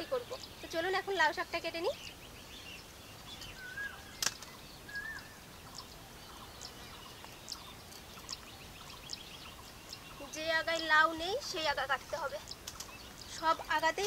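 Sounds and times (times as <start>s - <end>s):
faint bird calls: 0.0s - 14.0s
high bird chirps: 0.0s - 14.0s
whistled bird notes: 1.7s - 10.6s
sharp click: 4.2s - 4.5s.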